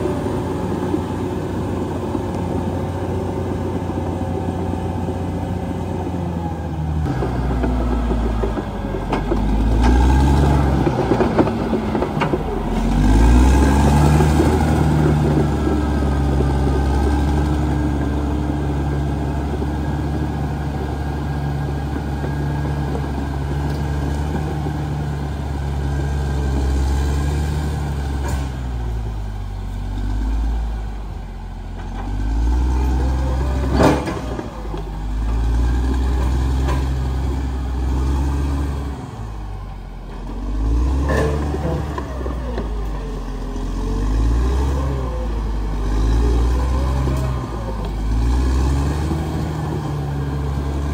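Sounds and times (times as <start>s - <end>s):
bulldozer diesel engine revving: 0.0s - 50.9s.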